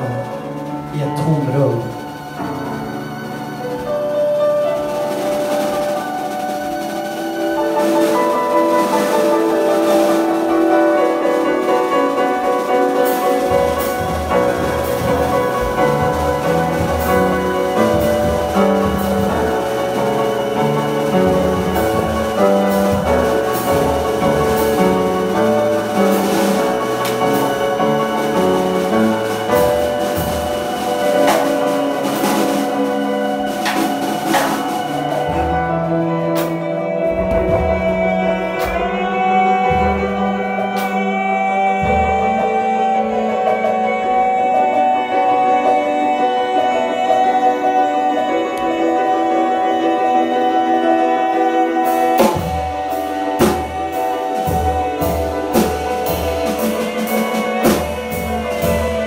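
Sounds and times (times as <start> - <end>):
low drum-like thumps: 0.0 - 40.9
piano and keyboard music: 0.0 - 59.0.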